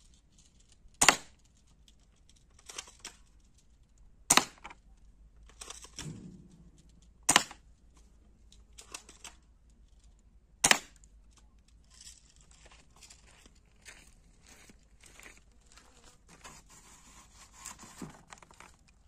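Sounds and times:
toy gun shots cracking: 0:01.0 - 0:01.4, 0:04.3 - 0:04.7, 0:05.7 - 0:07.6, 0:10.6 - 0:11.0.

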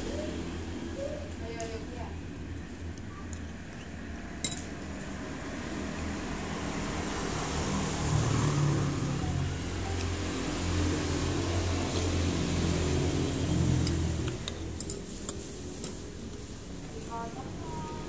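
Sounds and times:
metal spoon clinking on plate: 0:04.4 - 0:04.7.

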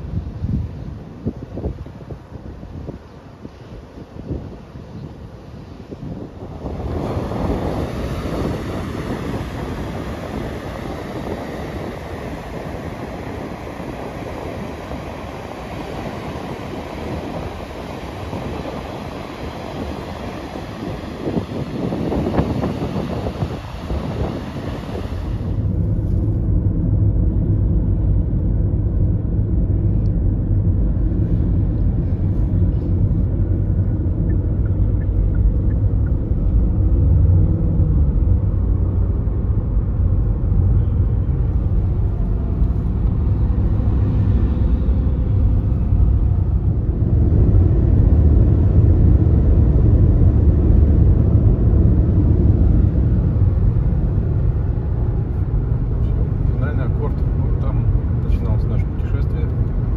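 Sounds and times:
surf: 0:00.0 - 0:26.5
car cabin road and engine rumble: 0:00.0 - 0:59.9
wind: 0:00.0 - 0:59.9.

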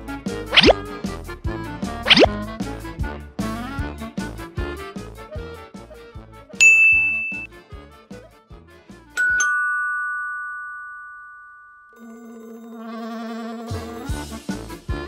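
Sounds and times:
short bright ding: 0:06.6 - 0:07.5
two-note doorbell chime: 0:06.6 - 0:07.5, 0:09.2 - 0:12.0.

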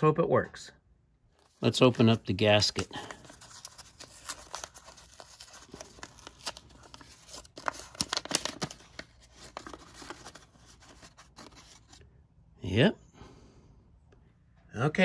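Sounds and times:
paper envelope tearing and crackling: 0:01.7 - 0:12.0.

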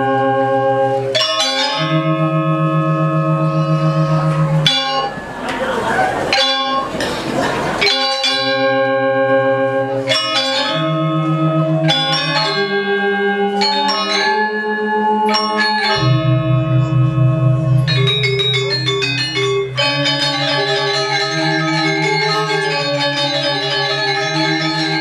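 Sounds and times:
metallophones ringing melody: 0:00.0 - 0:25.0
deep pulsing gong tone: 0:15.9 - 0:22.1.

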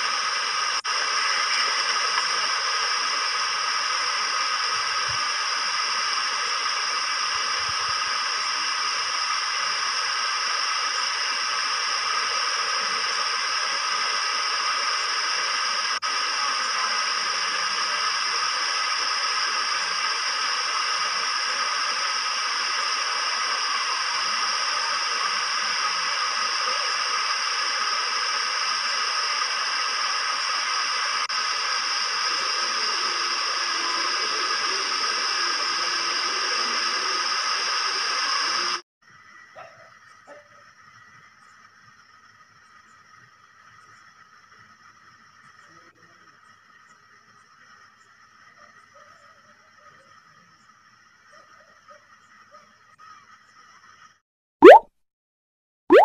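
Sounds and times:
steady static hiss: 0:00.0 - 0:38.8.

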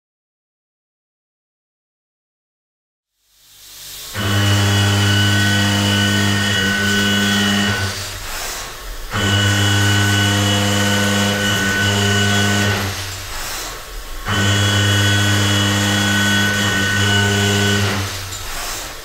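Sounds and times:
milling machine cutting steel: 0:04.0 - 0:19.0.

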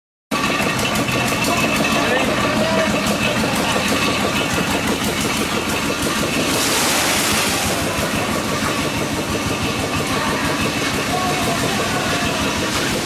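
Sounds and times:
engine chugging: 0:00.3 - 0:13.0
wet concrete sliding out: 0:06.1 - 0:08.1.

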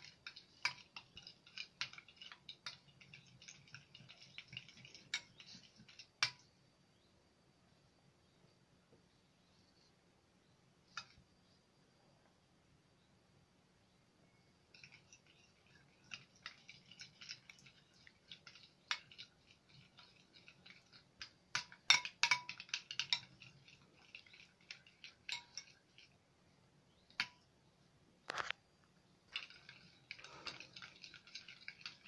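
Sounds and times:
spoons scraping glass bowls: 0:00.0 - 0:06.5, 0:14.7 - 0:26.2, 0:29.3 - 0:32.0.

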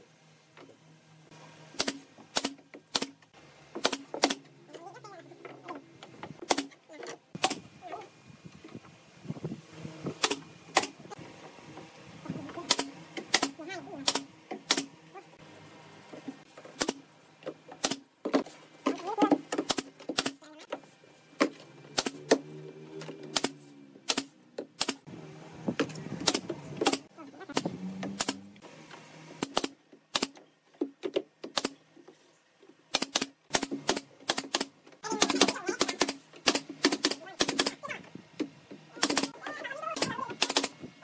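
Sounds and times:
nail gun snaps: 0:01.8 - 0:03.2, 0:03.8 - 0:04.5, 0:06.4 - 0:06.8, 0:10.2 - 0:11.0, 0:12.7 - 0:14.9, 0:17.8 - 0:18.0, 0:19.5 - 0:20.4, 0:22.0 - 0:22.4, 0:23.2 - 0:25.0, 0:25.8 - 0:28.4, 0:29.4 - 0:30.4, 0:31.1 - 0:31.8, 0:32.9 - 0:37.8, 0:39.0 - 0:39.3, 0:40.0 - 0:40.8.

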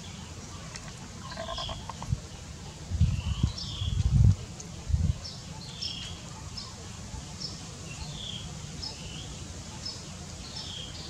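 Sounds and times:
bird chirping: 0:00.0 - 0:04.0.

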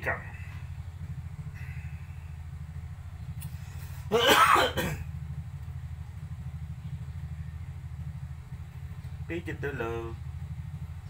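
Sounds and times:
steady low hum: 0:00.0 - 0:11.0
man clearing his throat: 0:04.0 - 0:05.1.

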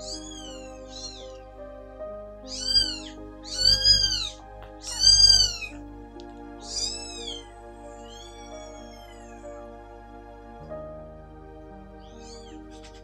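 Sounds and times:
kitten meowing: 0:00.0 - 0:01.4, 0:02.5 - 0:05.8, 0:06.6 - 0:09.4, 0:12.0 - 0:13.0
soft background music: 0:00.0 - 0:13.0.

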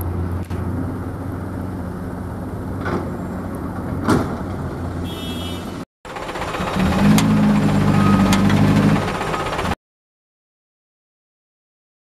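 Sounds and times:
heavy diesel engines humming: 0:00.0 - 0:09.8.

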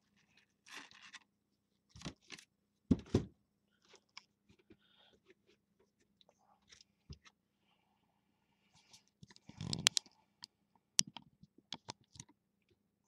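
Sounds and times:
box thumping on table: 0:02.9 - 0:03.3.

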